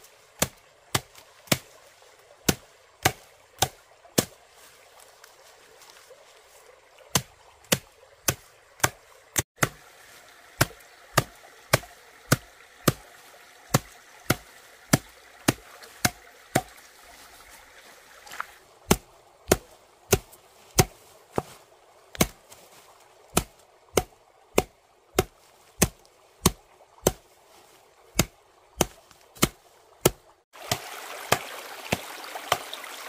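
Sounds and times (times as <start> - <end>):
stream water trickling: 0.0 - 33.0
blade chopping bamboo: 0.4 - 1.8, 2.4 - 4.4, 7.1 - 9.0, 9.6 - 9.9, 10.6 - 16.8, 18.9 - 21.5, 22.1 - 22.5, 23.3 - 27.3, 28.2 - 32.7.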